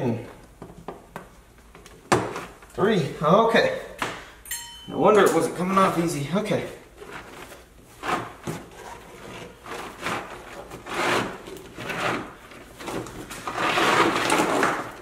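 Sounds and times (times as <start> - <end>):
rubber mat peeling and scraping: 6.9 - 15.0.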